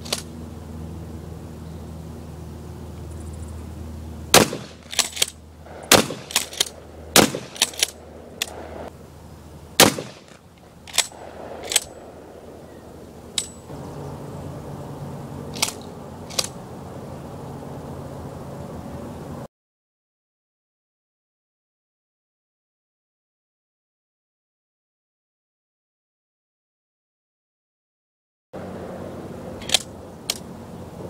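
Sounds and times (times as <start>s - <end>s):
sharp cracks: 0.0s - 0.3s, 4.3s - 8.9s, 9.8s - 12.7s, 13.3s - 13.7s, 15.5s - 16.6s
shotgun shots: 4.3s - 8.9s, 9.8s - 12.6s.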